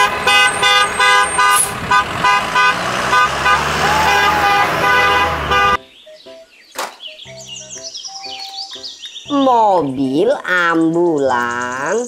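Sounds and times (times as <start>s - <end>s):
bus horn short toots: 0.0s - 5.8s
low bus engine rumble: 0.0s - 5.8s.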